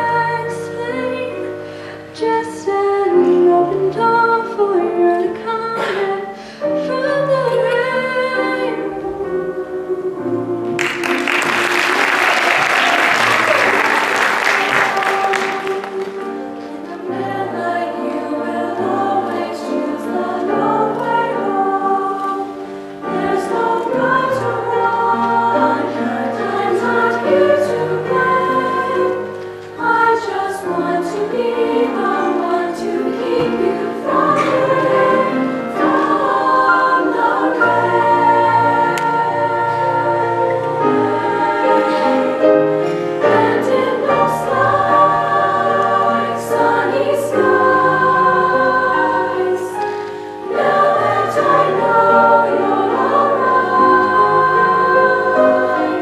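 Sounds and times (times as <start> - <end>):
women's choir singing: 0.0 - 56.0
audience applause: 10.8 - 16.3.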